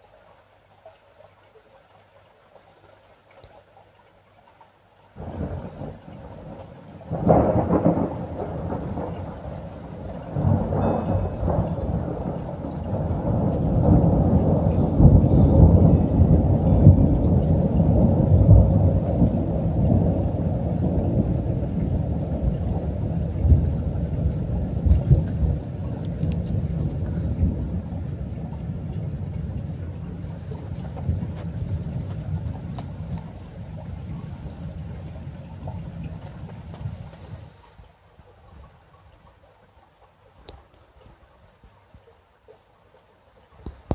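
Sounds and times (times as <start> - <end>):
thunder cracks: 5.2 - 36.9
rolling thunder rumble: 5.2 - 37.5.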